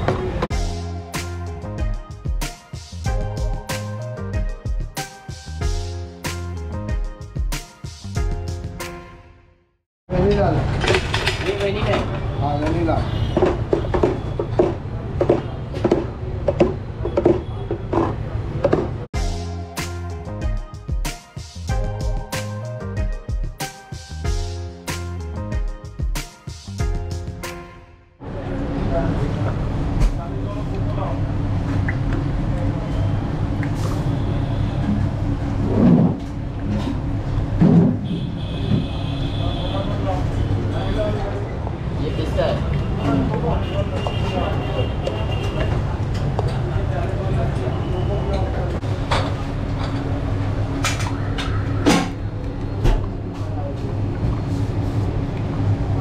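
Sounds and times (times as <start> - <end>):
music: 0.0 - 9.8, 19.2 - 28.2.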